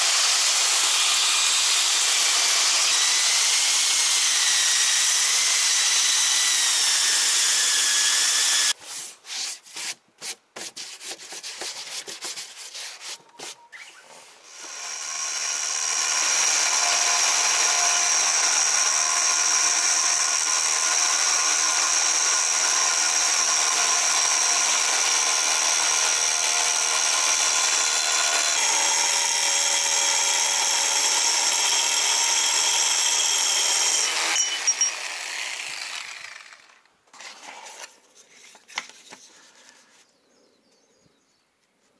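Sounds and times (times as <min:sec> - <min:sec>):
electric sander grinding: 0:00.0 - 0:08.8, 0:14.5 - 0:37.7.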